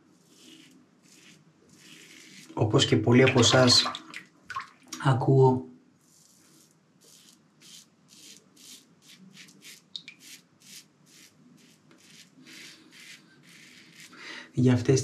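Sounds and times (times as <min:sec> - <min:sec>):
razor scraping stubble: 0:00.2 - 0:02.6, 0:06.0 - 0:14.2.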